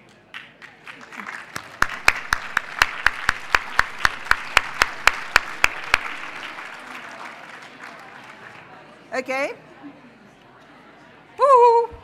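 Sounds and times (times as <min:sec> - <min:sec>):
close hand claps: 0:00.0 - 0:08.7
audience applauding: 0:00.3 - 0:08.8.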